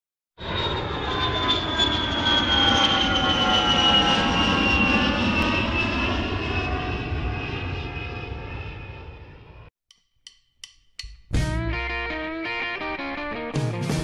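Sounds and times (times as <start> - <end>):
airplane engine drone: 0.4 - 9.7.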